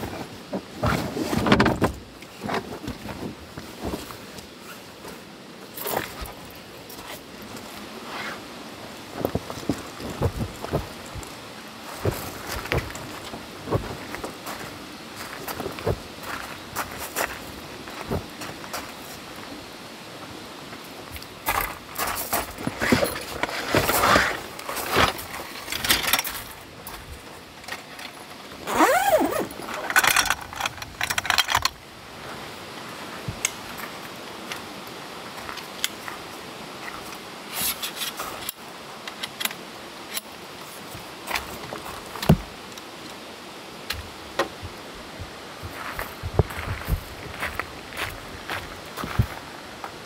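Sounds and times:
stuff sacks rustling: 21.6s - 27.1s.

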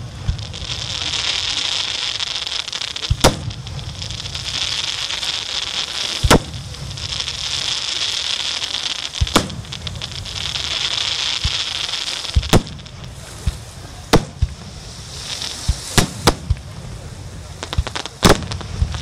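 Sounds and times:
steady hiss: 0.0s - 19.0s
firework shells bursting: 0.2s - 7.7s, 8.8s - 19.0s.

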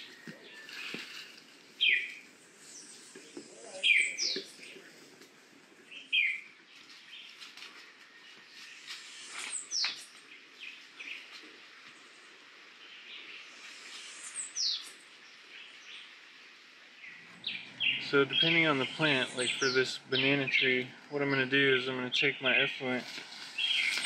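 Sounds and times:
faint bird chirps: 0.0s - 5.1s, 12.8s - 16.2s, 17.0s - 24.0s.

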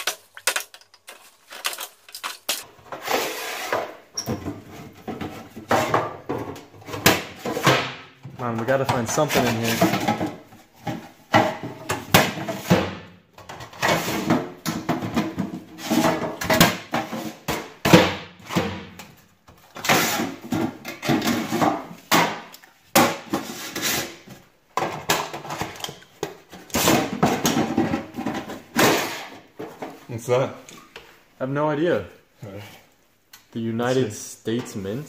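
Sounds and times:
metal boxes clanking and scraping: 0.0s - 18.9s, 19.8s - 22.4s, 23.0s - 30.4s.

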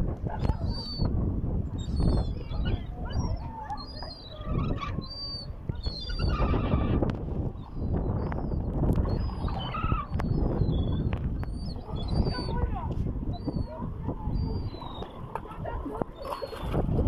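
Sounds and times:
gulls squealing: 1.9s - 7.0s, 9.0s - 12.8s.

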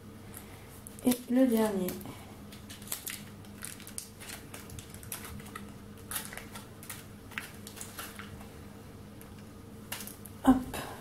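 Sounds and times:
faint steady hum: 0.0s - 11.0s
foil wrapper crinkling: 1.0s - 8.6s, 9.2s - 10.4s.

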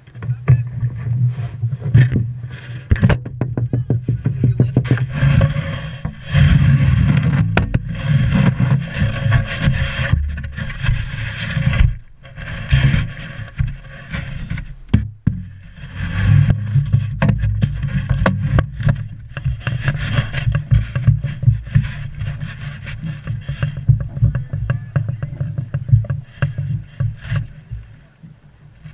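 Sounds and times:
water slapping wooden hull: 0.0s - 28.9s
irregular knocks: 1.9s - 6.5s, 14.9s - 15.6s.

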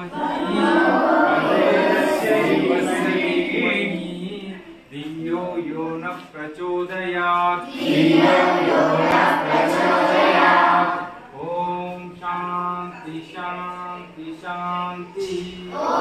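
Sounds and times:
voices chanting in unison: 0.0s - 4.6s, 7.6s - 11.5s, 15.2s - 16.0s.

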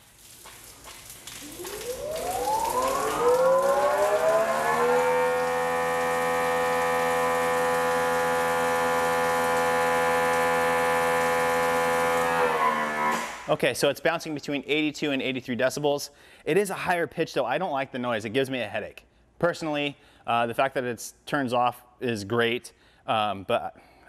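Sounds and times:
pressure washer motor whine: 1.4s - 13.6s.

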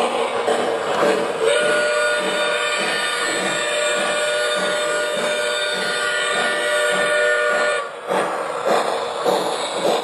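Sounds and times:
low rhythmic engine beat: 0.4s - 10.0s
steam locomotive whistle: 1.4s - 8.0s.

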